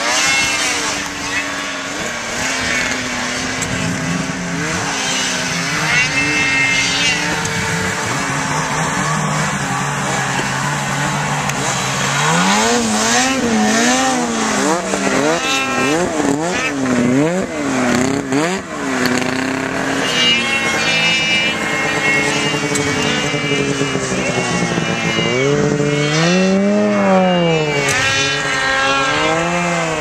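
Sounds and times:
higher-pitched engine note: 0.0s - 30.0s
snowmobile engine revving: 0.0s - 30.0s.

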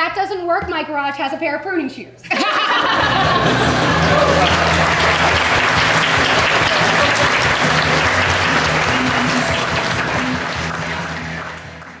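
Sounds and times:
audience applauding: 2.8s - 12.0s
background music with low notes: 2.9s - 12.0s.

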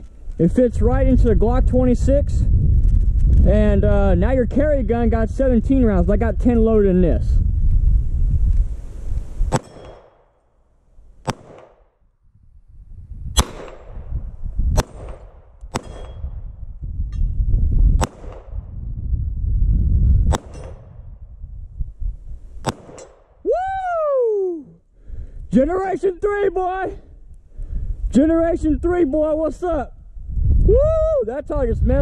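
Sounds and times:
wind rumbling on microphone: 0.0s - 10.0s, 10.9s - 32.0s
pistol shots: 9.5s - 10.4s, 11.2s - 11.9s, 13.4s - 14.1s, 14.7s - 16.4s, 18.0s - 18.6s, 20.3s - 21.0s, 22.6s - 23.3s.

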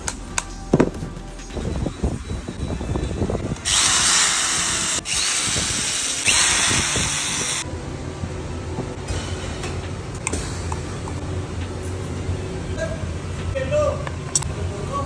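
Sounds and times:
cordless drill spinning: 3.6s - 7.6s.

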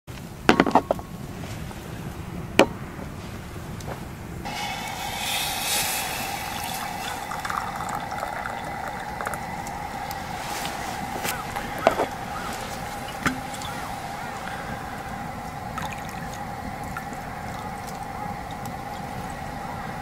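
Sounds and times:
steady hiss with low hum: 0.1s - 20.0s
hot water poured into glass: 4.5s - 13.9s.

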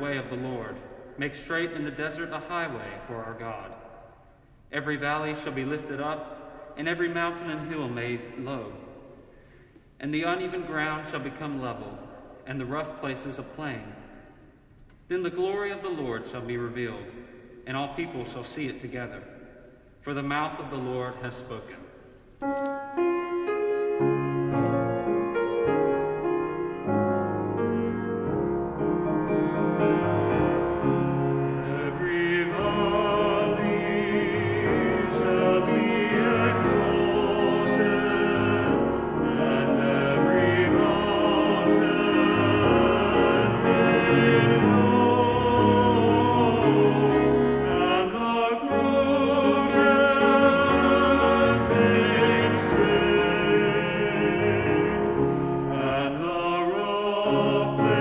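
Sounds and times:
piano playing: 22.4s - 58.0s
vocal ensemble singing: 29.9s - 58.0s.

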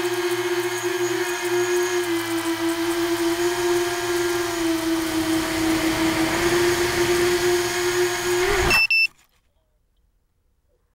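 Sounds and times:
drone motors whining: 0.0s - 8.9s
high beep: 8.6s - 9.1s.

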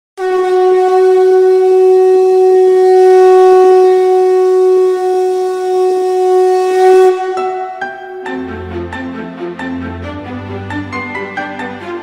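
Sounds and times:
conch shell blown: 0.2s - 8.7s.

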